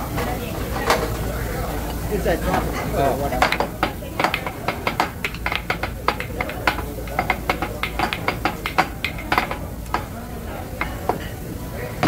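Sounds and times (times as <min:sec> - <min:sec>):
metal utensils clacking on griddle: 0:02.5 - 0:12.0.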